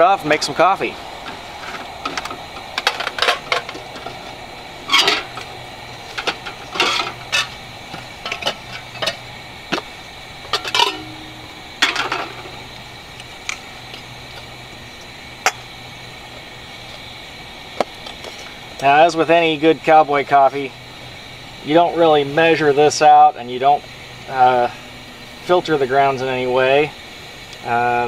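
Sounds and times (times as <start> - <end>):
camp stove hissing: 0.0 - 28.0
cookware clinking and clanking: 5.0 - 5.3, 6.2 - 7.6, 10.5 - 12.6.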